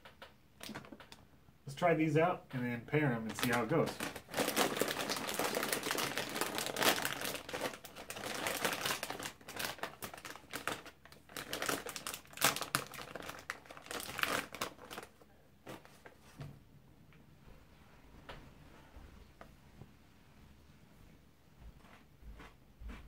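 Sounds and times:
snack bag crinkling: 0:03.2 - 0:16.2.

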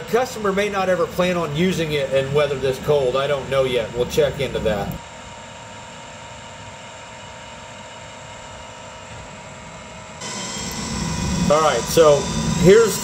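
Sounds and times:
oil burner rushing: 0:10.2 - 0:13.0.

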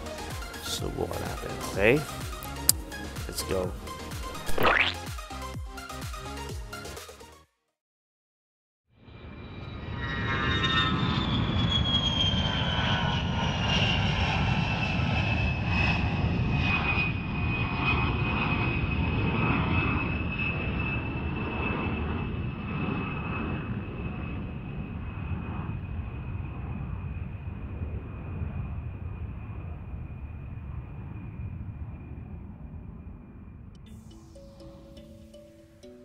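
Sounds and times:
jet engine low rumble: 0:09.0 - 0:35.3
jet engine whine: 0:09.0 - 0:36.0.

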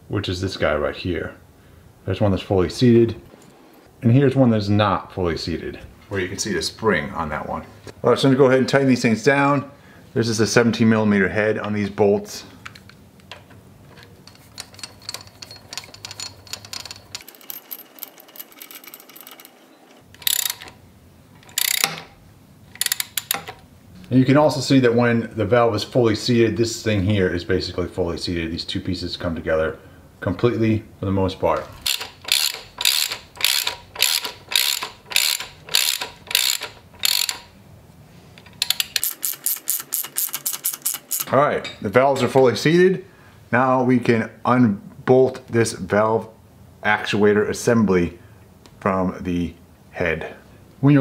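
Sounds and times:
hand ratchet clicking: 0:14.3 - 0:20.8, 0:21.4 - 0:22.1, 0:22.8 - 0:23.5, 0:31.8 - 0:37.5, 0:38.4 - 0:41.3.

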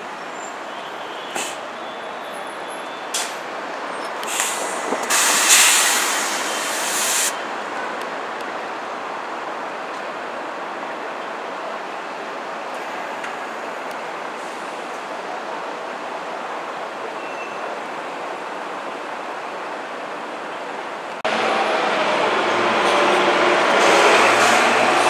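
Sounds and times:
street traffic noise: 0:00.0 - 0:25.0
bus air brakes hissing: 0:00.3 - 0:03.5, 0:04.2 - 0:07.4, 0:14.3 - 0:14.8.

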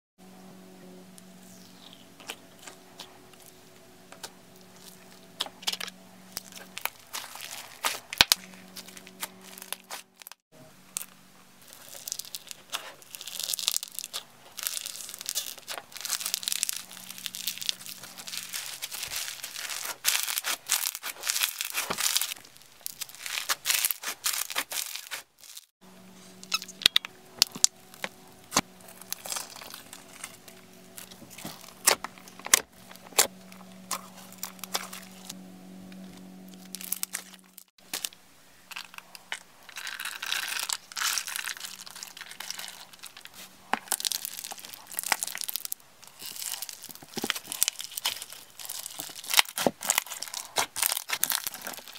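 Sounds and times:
low hum: 0:00.2 - 0:20.2, 0:25.8 - 0:49.3
foam-bead slime crunching: 0:01.8 - 0:25.7, 0:26.4 - 0:35.4, 0:36.0 - 0:51.9.

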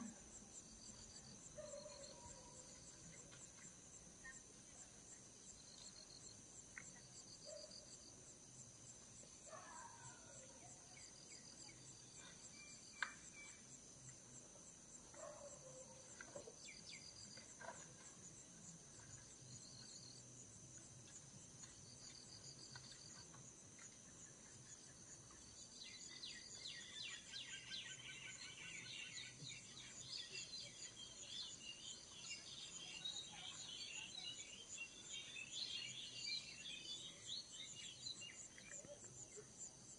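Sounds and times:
insect chirping calls: 0:15.2 - 0:39.9.

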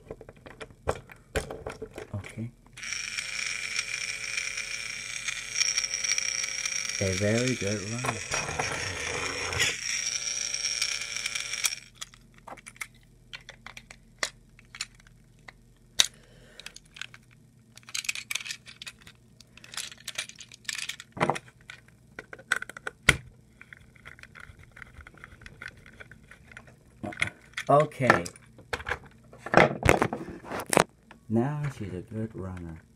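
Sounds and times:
toy train motor whirring: 0:02.8 - 0:12.8, 0:17.8 - 0:21.1.

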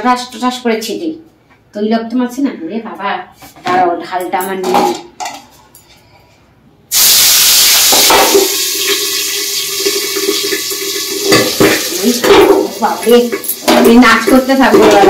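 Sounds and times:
fish frying in hot oil: 0:06.9 - 0:12.2.

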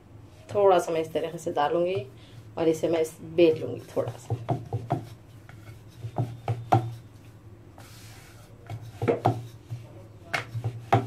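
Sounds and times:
rolling pin knocking on board: 0:03.5 - 0:07.0, 0:08.6 - 0:11.0.

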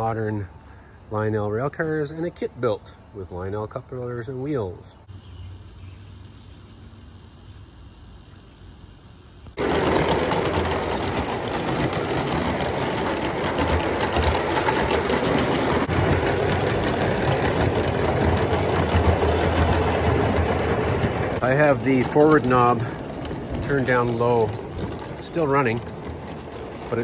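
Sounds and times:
model steam locomotive chuffing: 0:09.5 - 0:27.0.

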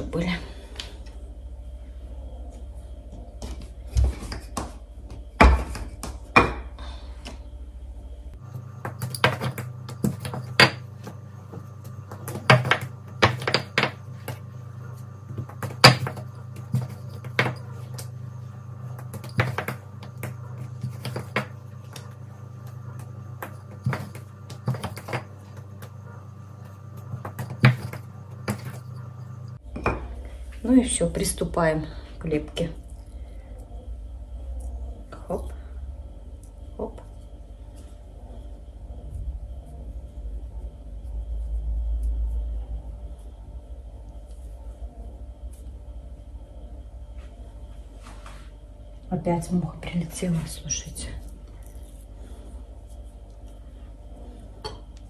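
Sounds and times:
steady background hum: 0:00.0 - 0:55.0
utensils knocking on work surface: 0:08.8 - 0:11.2, 0:12.1 - 0:14.4, 0:19.0 - 0:21.6.

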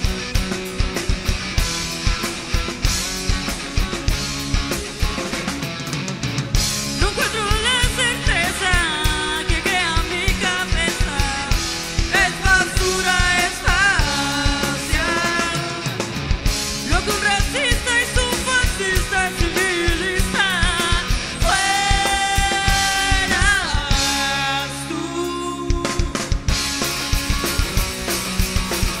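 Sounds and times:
rock band playing: 0:00.0 - 0:29.0
man singing: 0:07.0 - 0:16.1, 0:16.8 - 0:26.5.

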